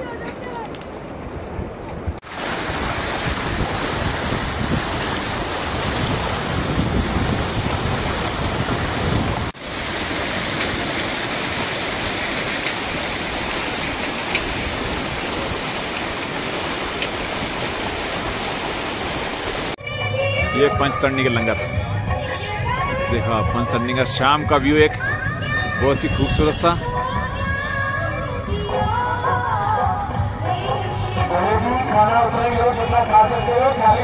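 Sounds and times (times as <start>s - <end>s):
wind buffeting microphone: 0.0s - 18.6s
river flowing over stones: 2.2s - 19.8s.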